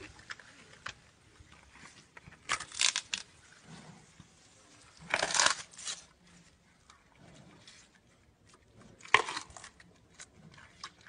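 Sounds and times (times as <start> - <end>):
panda crunching bamboo: 2.2 - 3.3, 5.0 - 6.1, 8.9 - 11.0.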